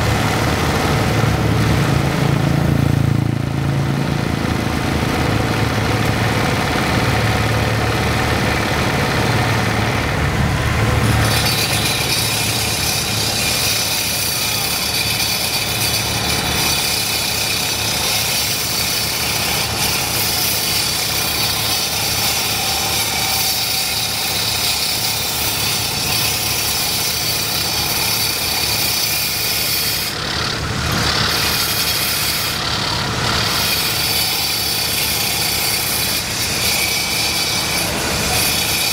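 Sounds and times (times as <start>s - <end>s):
diesel engine chugging: 0.0s - 22.3s, 30.2s - 34.1s
saw blade grinding road: 0.0s - 38.9s.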